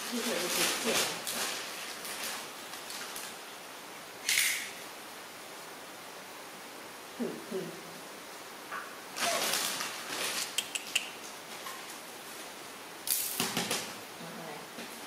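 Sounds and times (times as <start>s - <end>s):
diaper rustling and crinkling: 0.0s - 3.4s, 9.2s - 10.6s.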